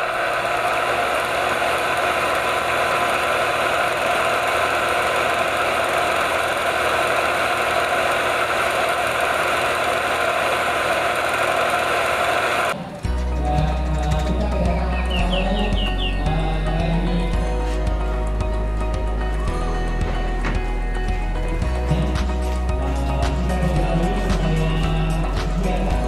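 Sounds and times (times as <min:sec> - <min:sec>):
film projector clatter and whir: 0:00.0 - 0:12.8.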